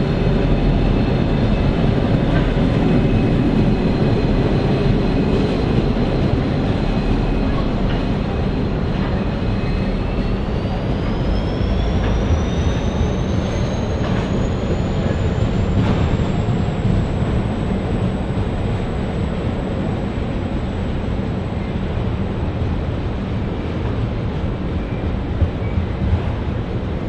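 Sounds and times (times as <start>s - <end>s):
locomotive engines rumbling: 0.0s - 27.0s
train wheel clacks: 0.6s - 10.3s, 11.0s - 17.4s.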